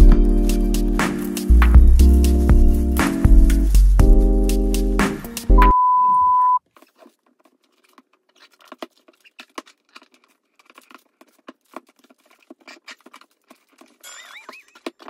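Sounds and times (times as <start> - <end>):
censor beep: 5.6 - 6.6.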